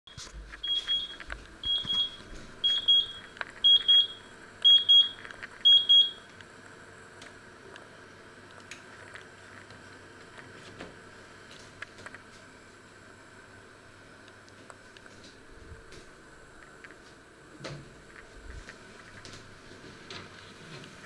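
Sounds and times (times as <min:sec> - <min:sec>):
oven timer beeping: 0:00.1 - 0:06.4.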